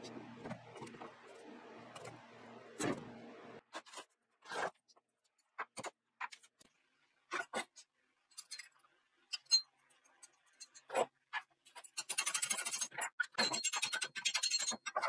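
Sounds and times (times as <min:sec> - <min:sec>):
metal tools clicking and knocking: 0:11.8 - 0:15.0.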